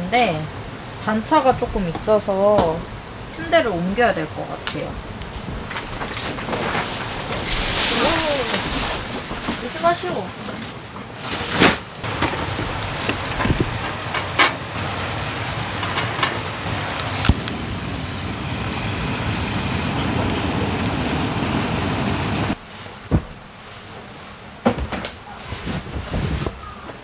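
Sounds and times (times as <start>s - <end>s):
steady rushing noise: 12.0s - 22.6s.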